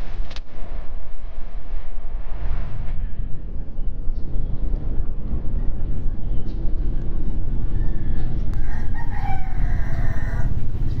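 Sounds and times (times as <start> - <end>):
steady low rumble: 0.0 - 11.0
rooster crowing: 7.8 - 11.0.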